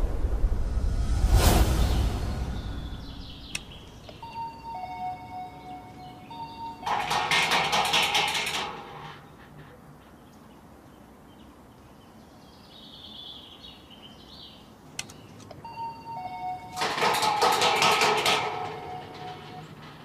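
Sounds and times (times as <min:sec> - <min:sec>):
crackling burst: 0:00.0 - 0:04.1
intercom electronic tones: 0:04.1 - 0:06.9, 0:15.6 - 0:16.8.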